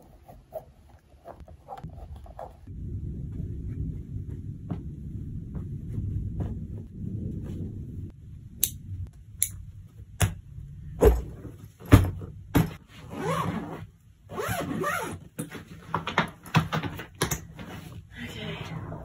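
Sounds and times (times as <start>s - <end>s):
thumps and knocks on suitcase: 11.0s - 12.8s
zipper pulls: 13.0s - 15.3s.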